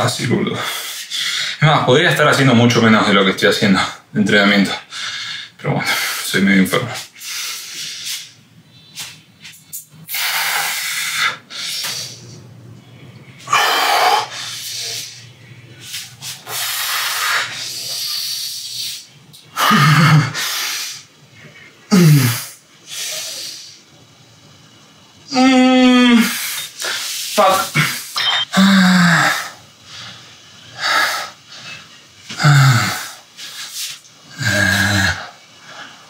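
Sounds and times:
man grunting: 21.9 - 22.4, 25.3 - 26.4.

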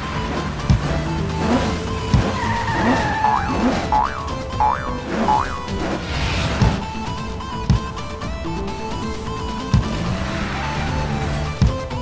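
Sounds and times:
cartoon background music: 0.0 - 12.0.

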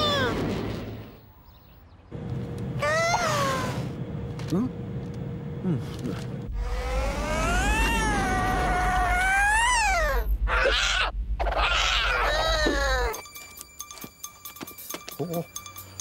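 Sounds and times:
cartoon cat yowling: 7.0 - 13.1.

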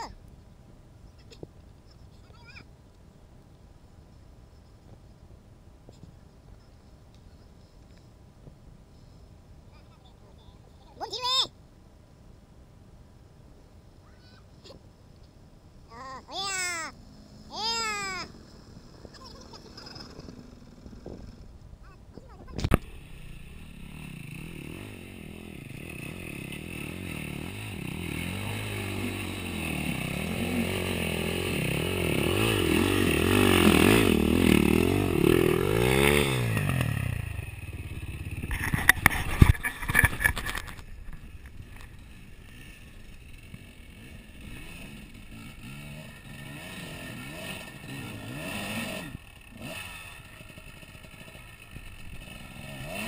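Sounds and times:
dirt bike engine revving: 16.9 - 21.5, 22.7 - 53.0.

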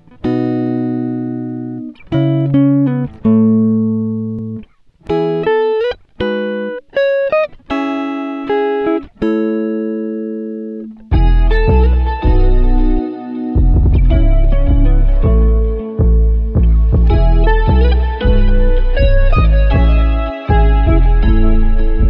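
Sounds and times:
plucked strings music: 0.0 - 22.0
deep bass accompaniment: 11.1 - 22.0.

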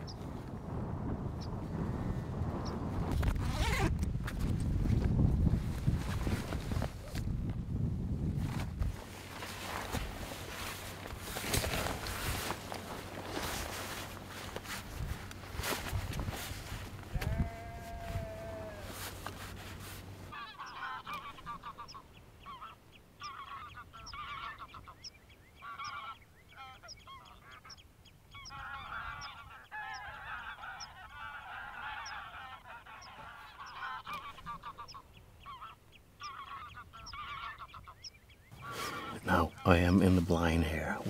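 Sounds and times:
wind rumble on microphone: 0.0 - 19.7
geese honking and chattering: 20.3 - 41.0.

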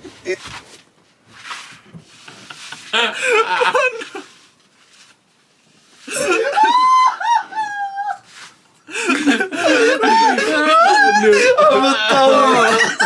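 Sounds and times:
person talking: 9.7 - 13.0.

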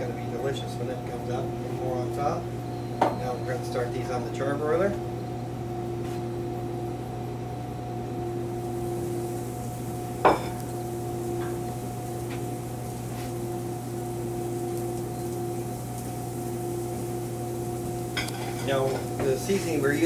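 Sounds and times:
kitchen equipment hum: 0.0 - 20.0
plate clinking down: 10.2 - 10.7.

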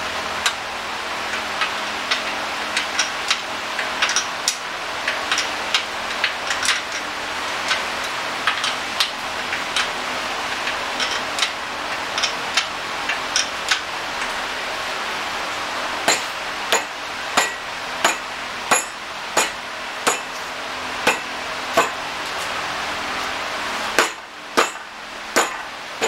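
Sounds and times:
metal tools clicking and tapping: 1.3 - 7.8, 8.4 - 9.9, 10.5 - 14.4, 16.1 - 20.5, 21.1 - 22.0.

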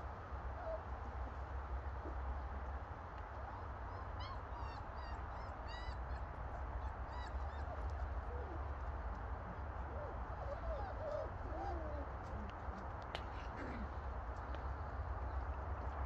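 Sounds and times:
puppies whimpering: 3.5 - 8.7, 9.9 - 13.9
puppies squeaking: 3.9 - 6.2, 7.1 - 8.5.

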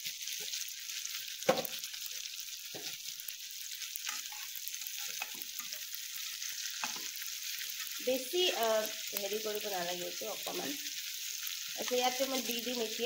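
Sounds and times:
food sizzling in hot oil: 0.0 - 13.0
knocks on a pan: 1.5 - 1.7.

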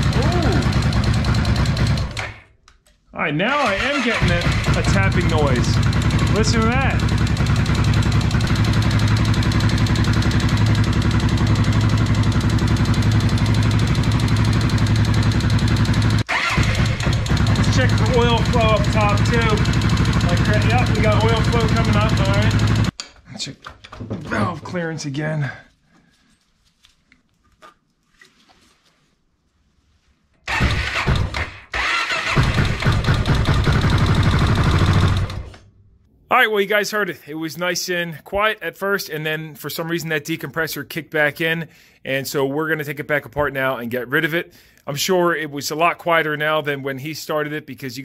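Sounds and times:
motorcycle engine idling: 0.0 - 2.2, 4.2 - 22.9, 32.3 - 35.4
engine tapping: 0.0 - 2.3, 4.2 - 22.9.

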